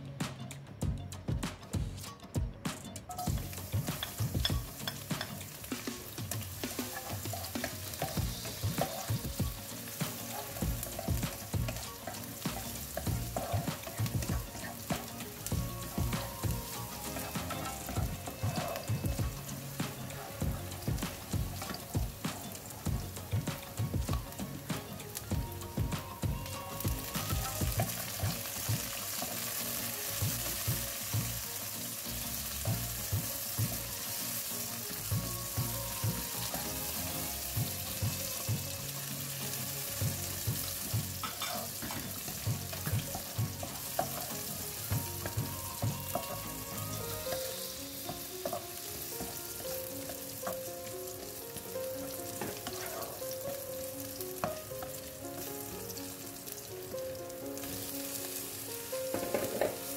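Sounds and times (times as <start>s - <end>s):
food sizzling in hot oil: 3.1s - 59.9s
spatula scraping and knocking pan: 3.3s - 24.3s, 40.6s - 49.4s, 59.1s - 59.9s.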